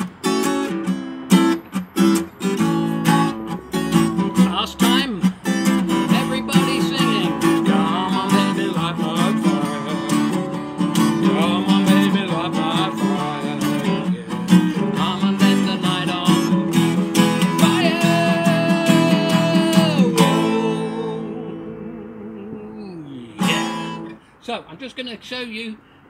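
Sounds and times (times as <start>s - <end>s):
acoustic guitar strumming: 0.0s - 24.4s
man singing: 4.4s - 24.1s.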